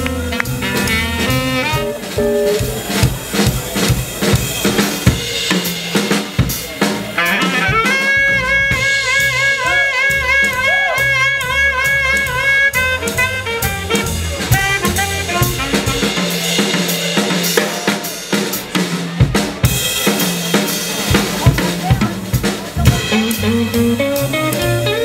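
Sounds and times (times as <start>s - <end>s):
horn section holding notes: 0.0s - 3.1s, 7.1s - 16.5s, 23.0s - 25.0s
drum kit break: 0.0s - 25.0s.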